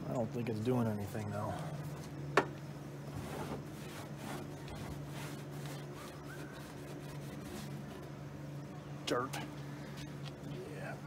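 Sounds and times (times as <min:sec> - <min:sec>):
steady low hum: 0:00.0 - 0:11.0
towel rubbing on metal: 0:03.1 - 0:08.1.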